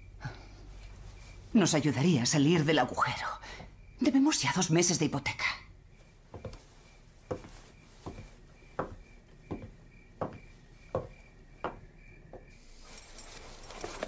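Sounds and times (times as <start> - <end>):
slow ticking knocks: 7.3 - 12.6.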